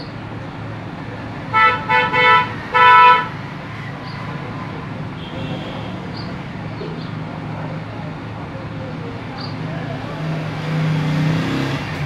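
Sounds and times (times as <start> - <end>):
vehicle horn honking: 1.5 - 3.4, 5.2 - 6.0.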